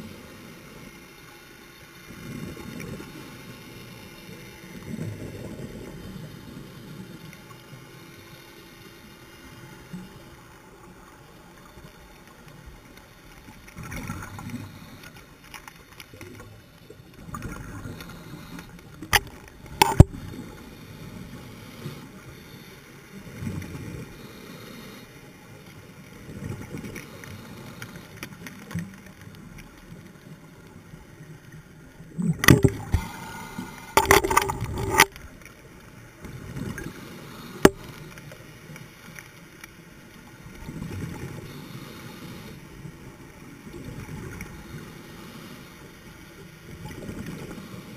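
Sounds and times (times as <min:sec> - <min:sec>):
diver breathing through regulator: 0:32.5 - 0:35.0, 0:41.3 - 0:42.7.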